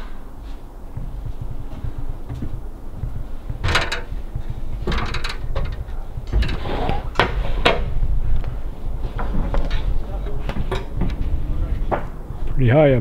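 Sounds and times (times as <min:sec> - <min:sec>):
knocks on aluminium ladder: 0:01.0 - 0:07.9.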